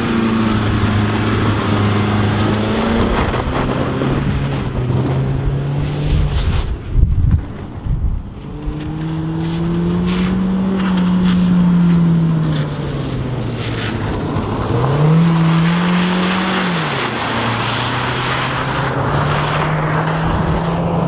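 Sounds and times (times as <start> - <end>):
car engine accelerating: 0.0 - 21.0
tyres hissing on wet road: 8.5 - 20.6.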